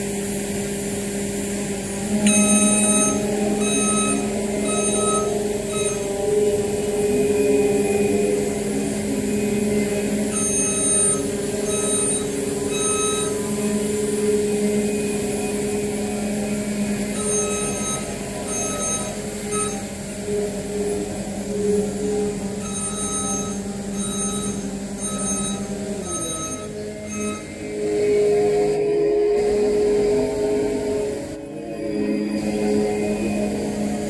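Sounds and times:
diesel engine running: 0:00.0 - 0:34.0
backup alarm beeping: 0:02.2 - 0:06.5, 0:09.6 - 0:13.6, 0:16.8 - 0:20.0, 0:22.6 - 0:28.2.

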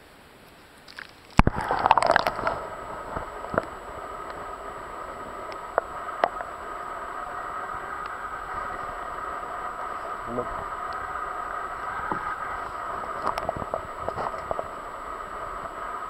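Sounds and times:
muffled underwater hiss: 0:00.0 - 0:16.0
faint clicks: 0:00.4 - 0:16.0
water splashing and bubbling: 0:00.8 - 0:16.0.

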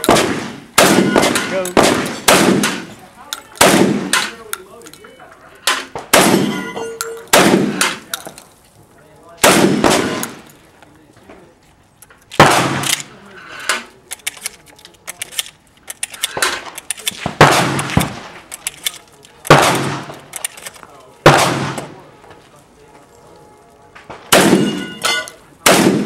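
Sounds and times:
shotgun shots with echo: 0:00.0 - 0:03.0, 0:03.6 - 0:04.4, 0:05.7 - 0:08.0, 0:09.4 - 0:10.4, 0:12.4 - 0:13.0, 0:16.3 - 0:18.4, 0:19.5 - 0:20.2, 0:21.2 - 0:22.0, 0:24.2 - 0:26.0
gun handling clicks: 0:01.3 - 0:05.9, 0:12.0 - 0:21.1.

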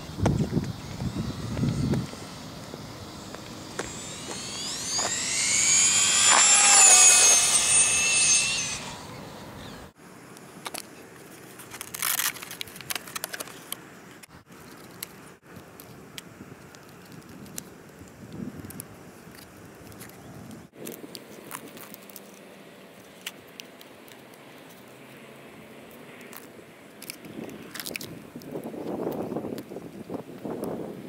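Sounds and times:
electric motor whining: 0:00.1 - 0:09.9.

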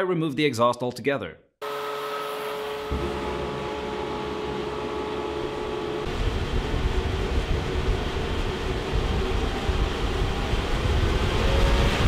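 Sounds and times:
leaf blower whine: 0:01.6 - 0:12.0
jet engine combustion rumble: 0:02.9 - 0:12.0.

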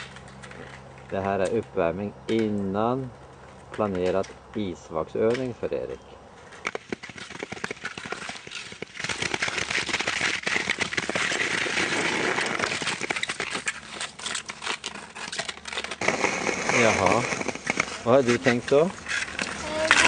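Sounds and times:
footsteps crunching through snow: 0:16.0 - 0:19.0.

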